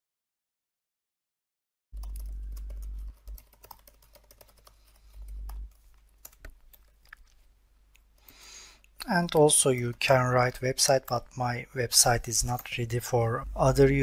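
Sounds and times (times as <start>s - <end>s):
steady low hum: 2.0s - 6.4s, 7.9s - 14.0s
keyboard typing clicks: 2.0s - 7.4s.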